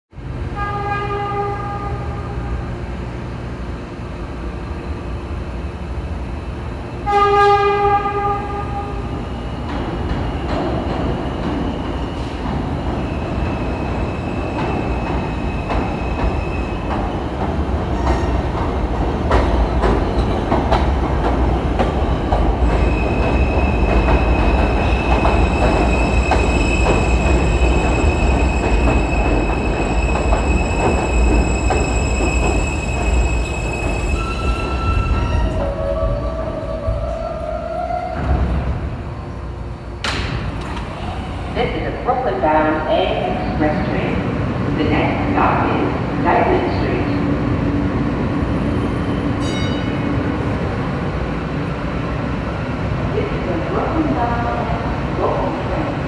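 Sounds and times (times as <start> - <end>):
train rumble: 0.2 - 56.0
train horn: 0.5 - 2.5, 7.0 - 9.0
high steady brake squeal: 22.8 - 35.6.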